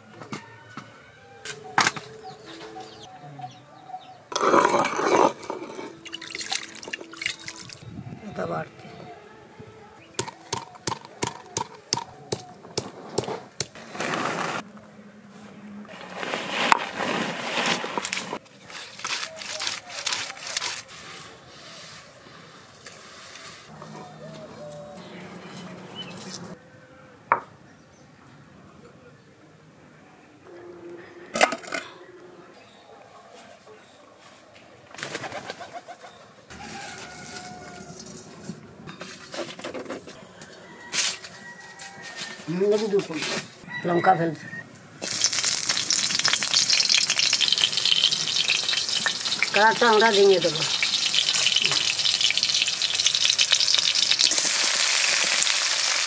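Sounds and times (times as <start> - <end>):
garlic scraping on stone: 15.9 - 22.1
birds calling: 23.4 - 26.6
pigeon wing flaps: 35.0 - 35.9.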